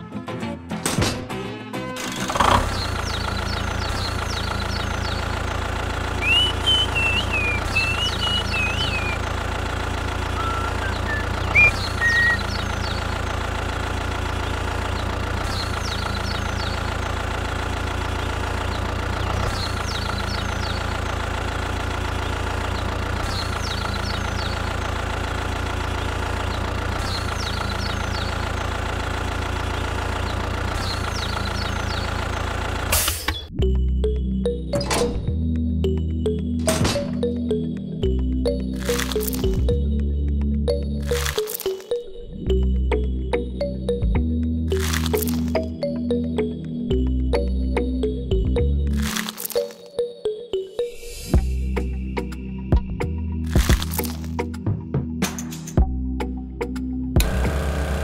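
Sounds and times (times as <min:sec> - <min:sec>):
tractor engine idling: 0:02.0 - 0:50.0, 0:55.3 - 0:58.0
high whistled chirps: 0:06.2 - 0:09.2, 0:10.4 - 0:12.9.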